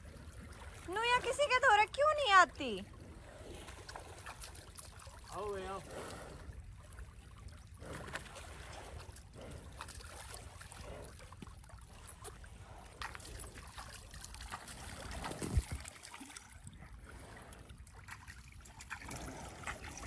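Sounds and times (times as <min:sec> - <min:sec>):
water splashing and trickling: 0:00.0 - 0:20.0.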